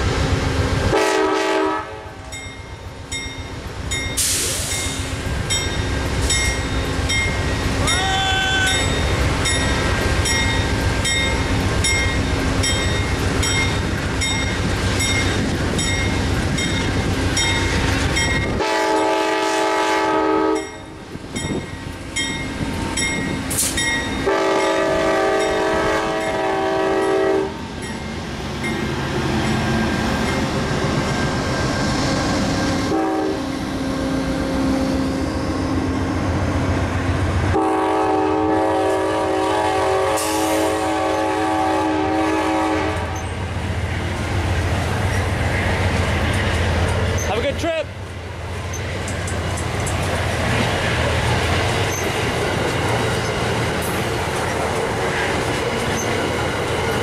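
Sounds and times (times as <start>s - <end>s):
diesel locomotive engine rumbling: 0.0s - 57.0s
multi-note train horn blasts: 0.9s - 2.3s, 18.5s - 20.8s, 24.2s - 27.6s, 32.9s - 34.8s, 37.5s - 43.2s
passenger cars rolling by: 43.3s - 57.0s.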